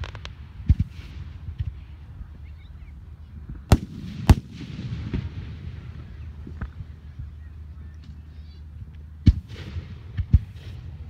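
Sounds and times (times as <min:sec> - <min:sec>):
faint firework pops: 0:00.0 - 0:01.8
firework bangs: 0:03.7 - 0:06.2.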